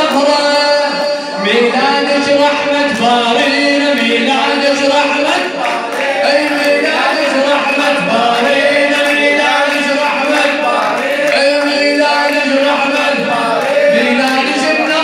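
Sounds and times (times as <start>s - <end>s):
man chanting through a microphone: 0.0s - 15.0s
men singing in unison: 0.0s - 15.0s.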